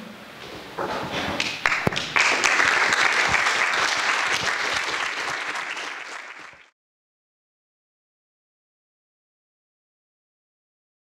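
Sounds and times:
audience applauding: 0:01.4 - 0:06.8.

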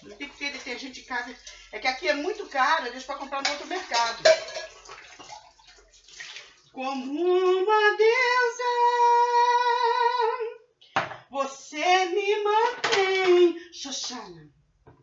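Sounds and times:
dishes being washed: 0:00.0 - 0:06.8
water running into sink: 0:00.0 - 0:06.8
woman singing: 0:06.8 - 0:10.6, 0:11.4 - 0:14.4.

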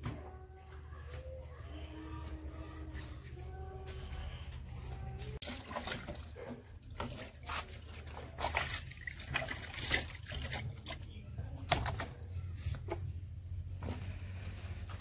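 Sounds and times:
water splashing in a bucket: 0:05.4 - 0:12.9.

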